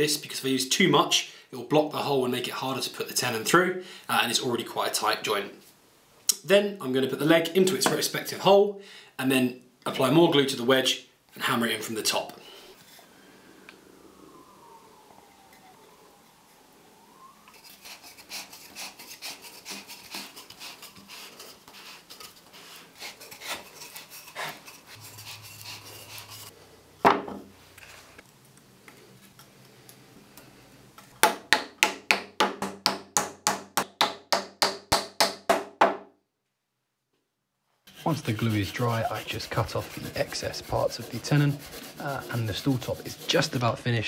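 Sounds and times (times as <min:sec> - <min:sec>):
wood rubbing and scraping: 0:17.3 - 0:26.6, 0:37.9 - 0:44.0.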